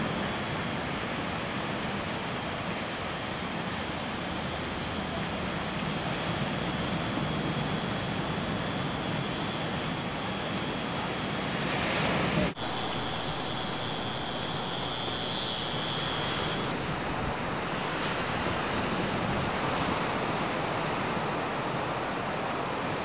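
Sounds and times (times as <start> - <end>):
wind: 0.0 - 23.0
ocean surf breaking: 11.7 - 22.0.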